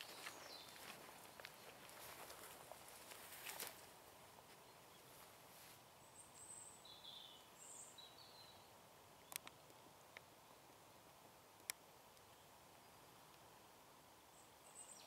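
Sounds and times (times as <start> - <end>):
brief rustle: 2.2 - 3.9
bird chirps: 6.0 - 9.4.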